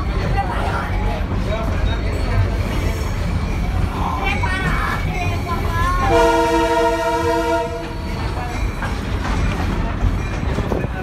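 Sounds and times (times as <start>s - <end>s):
carriage rumbling on track: 0.0s - 11.0s
train horn blast: 6.1s - 8.0s.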